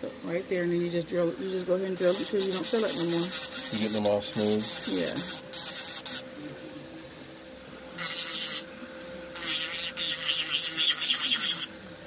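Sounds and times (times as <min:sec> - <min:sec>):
electric nail drill humming: 0:00.4 - 0:06.3, 0:07.8 - 0:11.8
drill bit scraping nail: 0:02.0 - 0:06.2, 0:08.0 - 0:08.7, 0:09.4 - 0:11.7.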